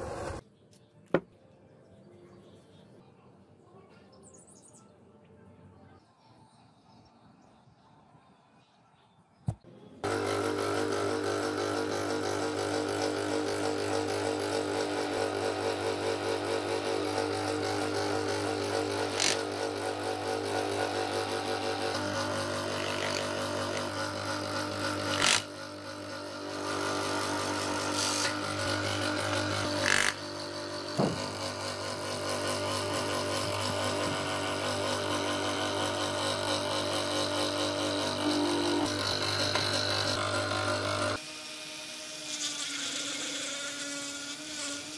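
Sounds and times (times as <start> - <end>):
motor machine humming: 0.0 - 0.4, 10.0 - 41.2.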